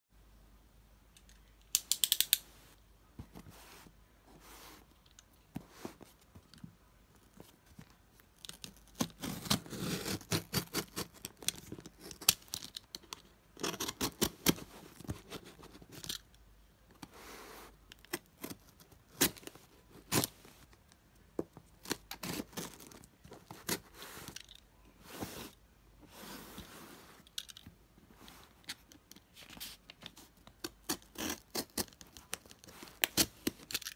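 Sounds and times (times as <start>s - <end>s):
knife slicing tape and cardboard: 9.0s - 12.3s, 30.6s - 33.6s.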